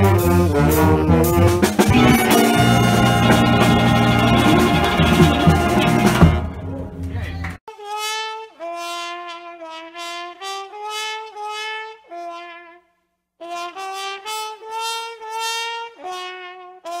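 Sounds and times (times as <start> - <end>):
brass instrument melody: 0.0 - 17.0.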